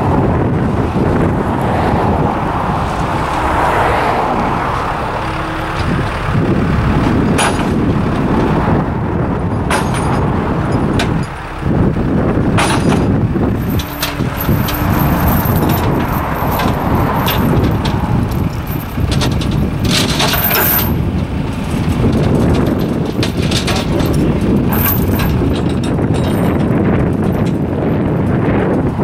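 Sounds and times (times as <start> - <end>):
loader engine running: 0.0 - 29.0
wind rumbling on microphone: 0.0 - 29.0.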